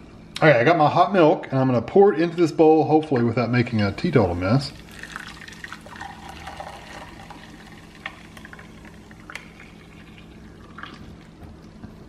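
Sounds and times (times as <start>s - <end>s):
milk pouring into a bowl: 4.6s - 11.6s.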